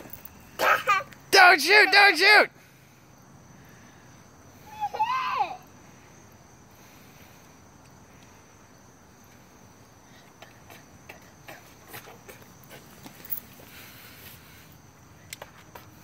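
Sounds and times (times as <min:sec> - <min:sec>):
crickets chirring: 0:00.0 - 0:16.0.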